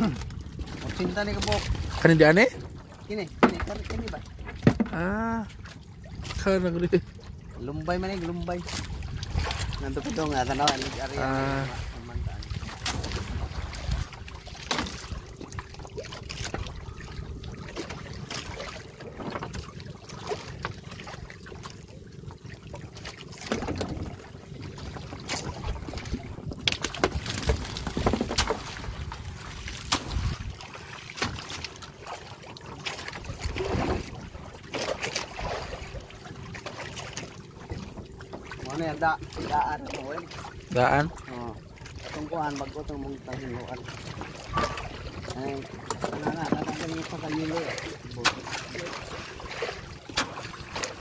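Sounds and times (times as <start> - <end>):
water against small boat: 0.0 - 51.0
wind on microphone: 8.8 - 14.4, 25.5 - 30.6.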